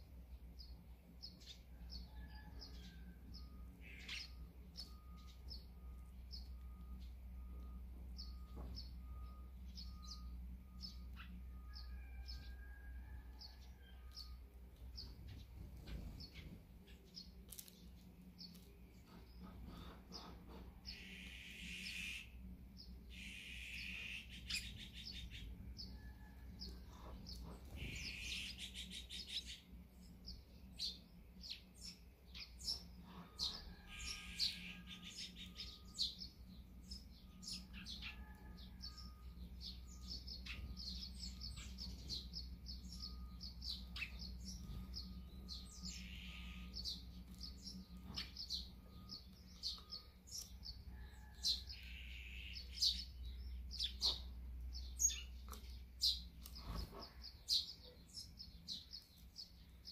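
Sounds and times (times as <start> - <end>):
sparrows chirping: 0.0 - 59.9
harsh bird rasps: 20.9 - 22.4, 23.1 - 25.1.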